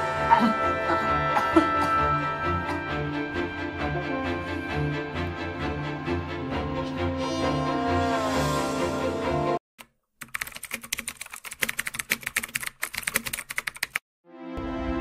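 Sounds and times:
background music: 0.0s - 9.6s, 14.3s - 15.0s
keyboard typing clicks: 9.8s - 14.0s.

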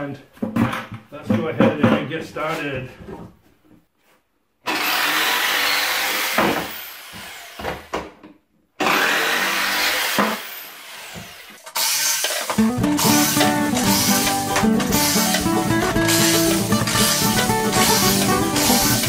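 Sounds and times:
jigsaw cutting wood: 4.6s - 7.9s, 8.8s - 19.0s.

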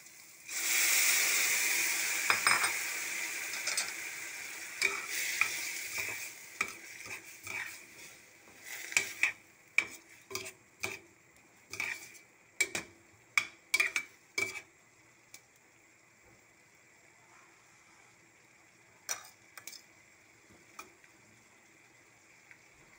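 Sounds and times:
beans sizzling in a pan: 0.0s - 22.9s
spatula knocking and scraping pan: 4.8s - 11.1s, 11.7s - 14.7s.

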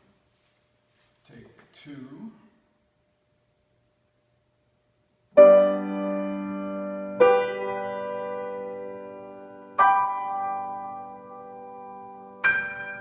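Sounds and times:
grand piano chords: 5.3s - 13.0s.

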